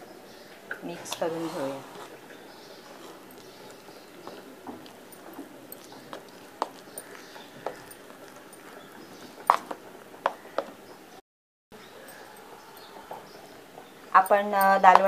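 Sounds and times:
metal spoon scraping a bowl: 1.0 - 5.2.

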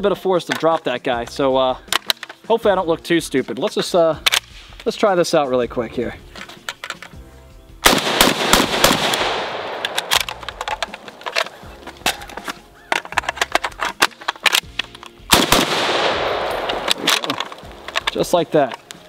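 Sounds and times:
magazine reload clicks and clacks: 1.9 - 2.4, 3.6 - 4.9, 6.4 - 7.2, 7.9 - 19.0
rifle shots: 7.8 - 11.7, 15.3 - 18.3.

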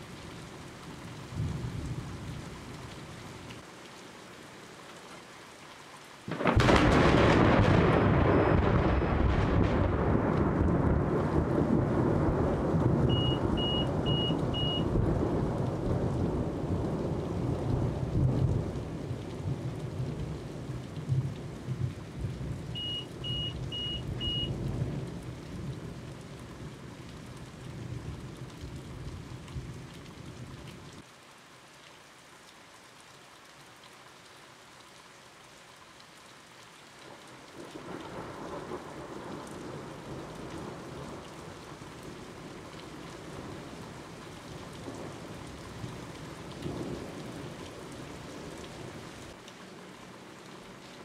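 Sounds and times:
steady rain: 0.0 - 51.0
thunderclap and low rumble: 6.3 - 26.1
short high beeps: 13.1 - 14.8, 22.8 - 24.5.

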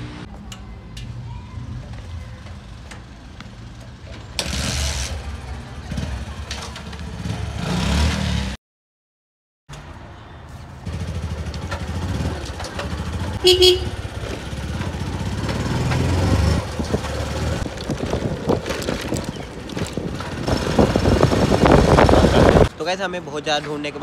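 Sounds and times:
motorcycle engine accelerating: 4.4 - 8.6, 10.8 - 22.7
short horn beep: 13.4 - 14.0.

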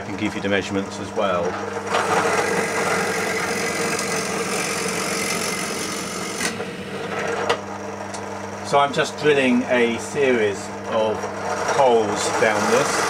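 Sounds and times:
pillar drill boring into wood: 1.8 - 7.4, 9.7 - 13.0.

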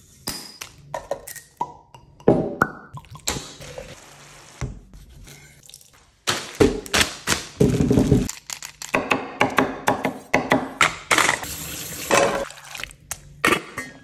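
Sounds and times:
liquid pouring and dripping: 2.9 - 3.9.

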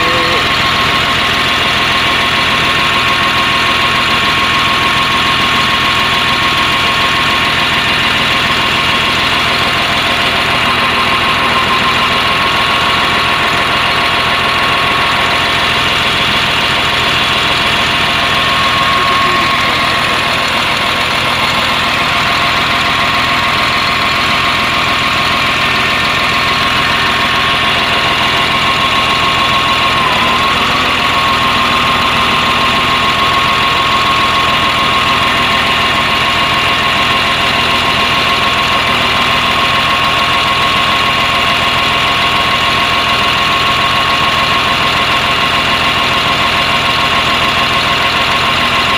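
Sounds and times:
man talking: 0.0 - 0.6, 18.8 - 20.0
diesel engine idling with misfire: 0.0 - 48.9.

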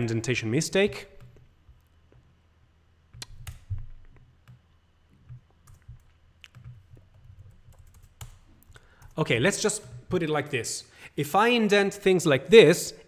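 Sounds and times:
computer keyboard clicks: 3.2 - 4.6, 5.3 - 9.2.

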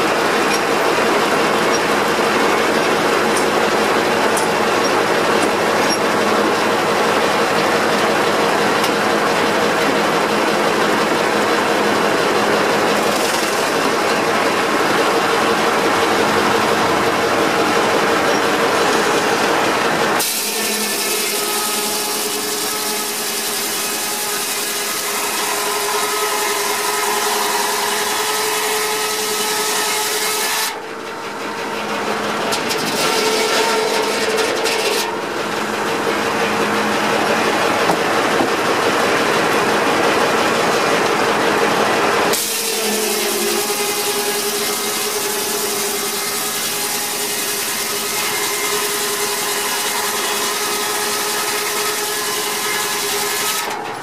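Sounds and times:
circular saw blade cutting log: 0.0 - 38.2, 42.3 - 54.0.

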